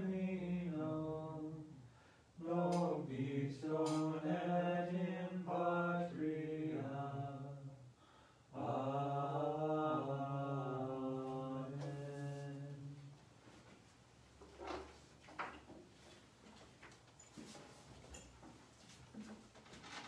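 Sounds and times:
low voices singing a hymn: 0.0s - 13.3s.

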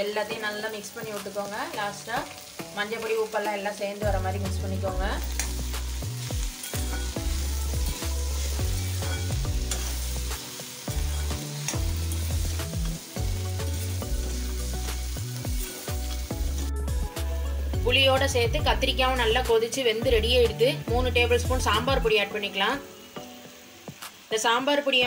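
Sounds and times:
vegetables sizzling in oil: 0.0s - 25.0s
wooden spatula scraping: 6.6s - 12.4s.

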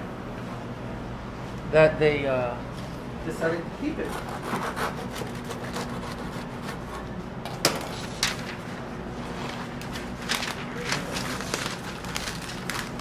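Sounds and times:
bread scraping on cutting board: 4.0s - 7.1s.

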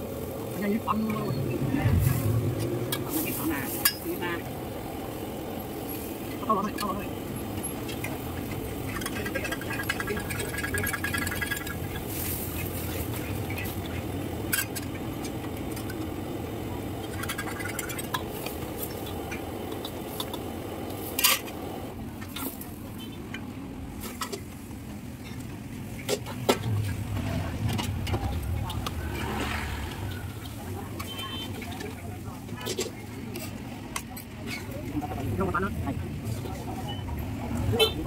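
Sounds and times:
food sizzling in a wok: 2.1s - 6.4s, 7.8s - 14.9s
metal ladle scraping a wok: 8.9s - 14.9s.

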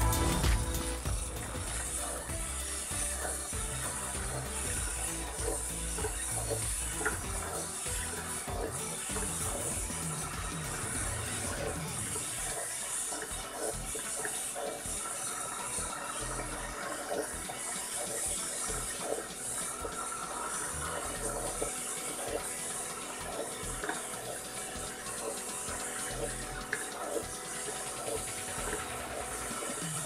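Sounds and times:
soft low thumps: 0.0s - 11.9s
steady high hiss: 0.0s - 30.0s.

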